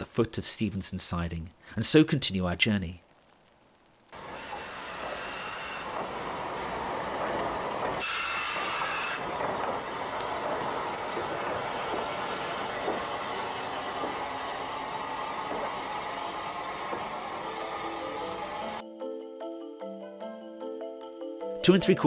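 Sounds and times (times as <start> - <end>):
train rumbling on track: 4.2 - 18.8.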